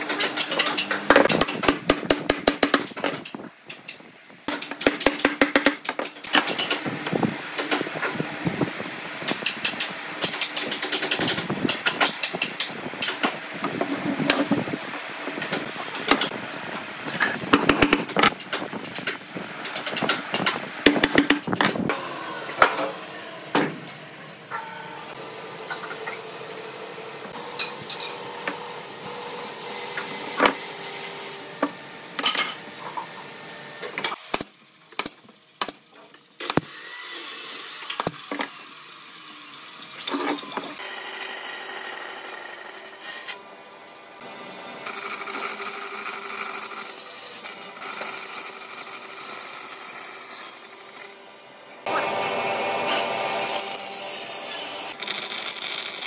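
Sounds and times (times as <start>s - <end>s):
bandsaw cutting wood: 51.8s - 56.0s.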